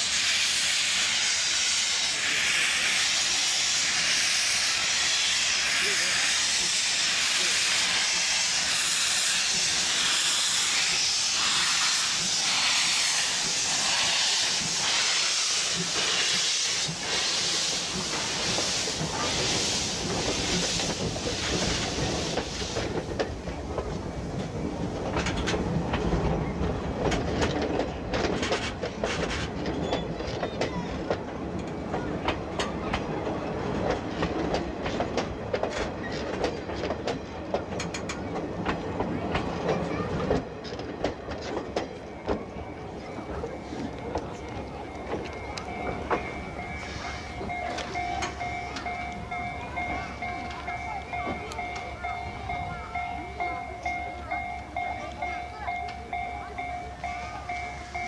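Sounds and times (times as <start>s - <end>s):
steam hissing: 0.0s - 25.7s, 42.9s - 52.7s
train wheels clicking over rail joints: 0.0s - 58.0s.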